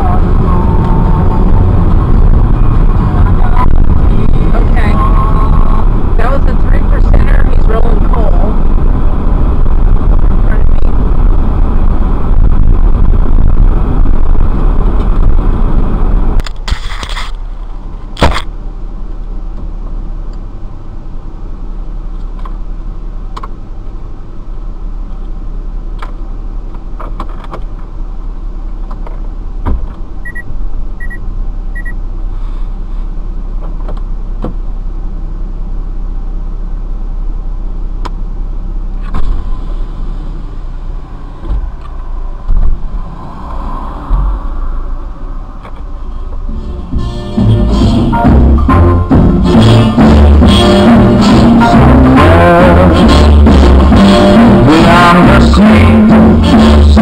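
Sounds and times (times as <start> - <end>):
road and engine noise in van: 0.0 - 57.0
short high beeps: 30.2 - 31.2, 31.8 - 32.0.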